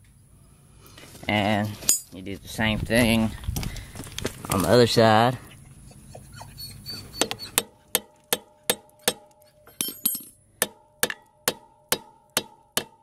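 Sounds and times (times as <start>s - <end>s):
hammer tapping on metal: 7.6s - 13.0s.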